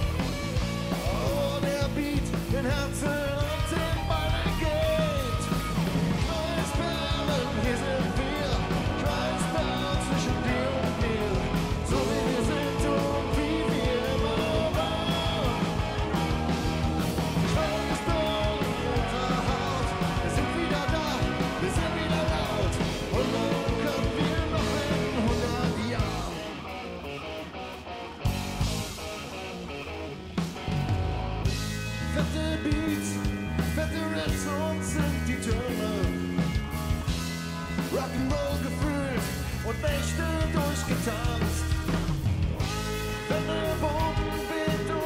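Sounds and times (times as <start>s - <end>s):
bass guitar: 0.0s - 45.0s
drums: 0.0s - 45.0s
electric guitar: 0.0s - 45.0s
live pop-rock band playing: 0.0s - 45.0s
person singing: 0.8s - 16.6s, 17.2s - 26.6s, 43.2s - 45.0s.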